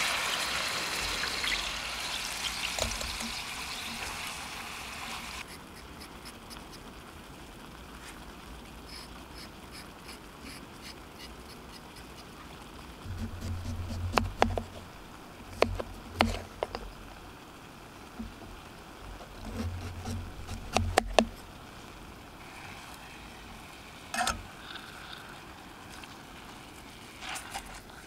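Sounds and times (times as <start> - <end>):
faint steady hiss: 0.0 - 28.0
sharp clicks and knocks: 13.1 - 14.9, 15.5 - 17.0, 19.2 - 21.4
dull low thuds: 13.1 - 16.1.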